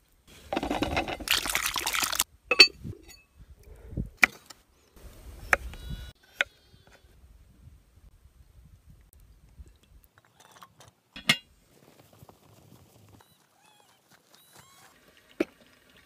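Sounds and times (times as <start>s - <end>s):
water sloshing: 0.6s - 2.6s.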